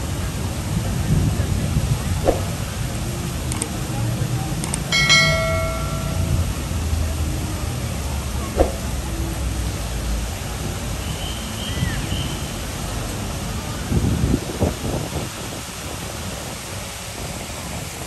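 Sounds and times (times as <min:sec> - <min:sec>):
road traffic rumble: 0:00.0 - 0:18.0
short ringing tone: 0:04.9 - 0:06.6.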